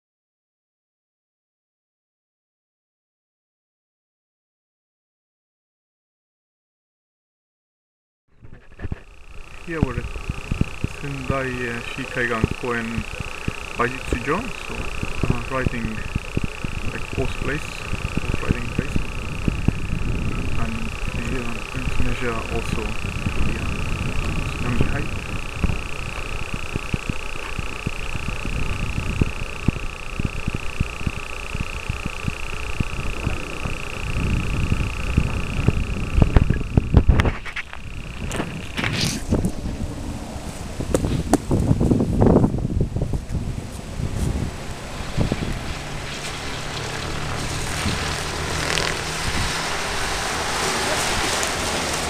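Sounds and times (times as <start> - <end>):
steady high whine: 8.3 - 52.0
wind buffeting microphone: 8.4 - 52.0
diesel truck engine driving past: 44.4 - 52.0.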